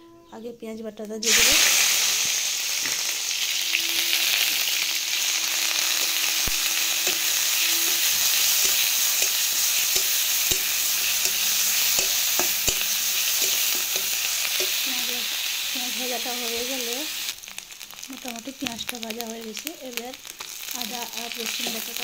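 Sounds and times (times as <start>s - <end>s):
onion paste sizzling in oil: 1.2s - 22.0s
spatula scraping and tapping pan: 5.9s - 14.9s.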